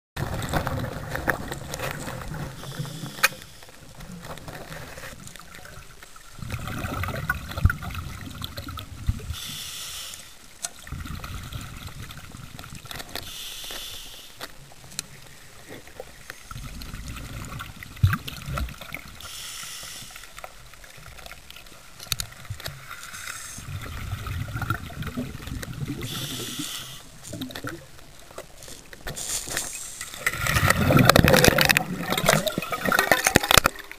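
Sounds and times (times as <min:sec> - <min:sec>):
exhaled air bubbling: 0:00.2 - 0:13.6, 0:14.6 - 0:33.9
regulator inhalation hiss: 0:02.6 - 0:03.7, 0:09.3 - 0:10.4, 0:13.2 - 0:14.4, 0:19.2 - 0:20.4, 0:23.0 - 0:23.6, 0:26.0 - 0:27.2, 0:29.4 - 0:30.3.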